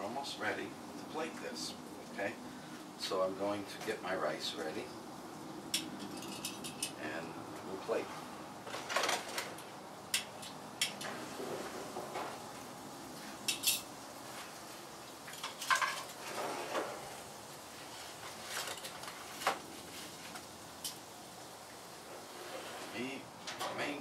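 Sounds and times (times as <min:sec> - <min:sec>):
metal tongs clinking on grill: 0:05.7 - 0:07.0, 0:13.4 - 0:13.9.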